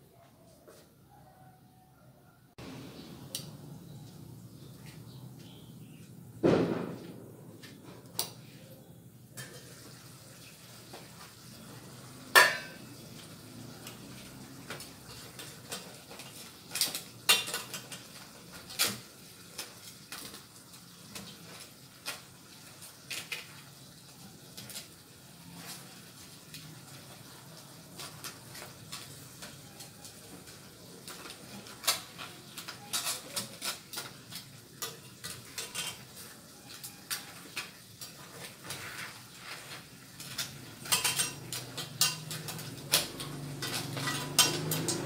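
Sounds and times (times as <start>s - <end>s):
metal pan lid clanking: 12.3s - 12.8s
metal tongs scraping pan: 31.0s - 45.0s.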